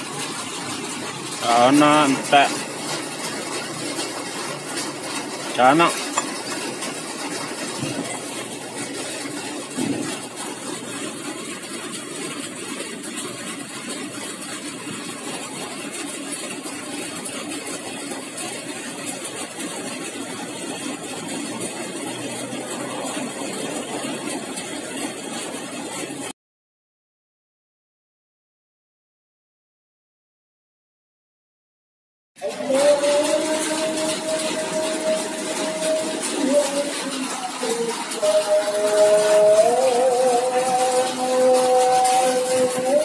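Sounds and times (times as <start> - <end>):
engine hum: 0.0 - 26.3.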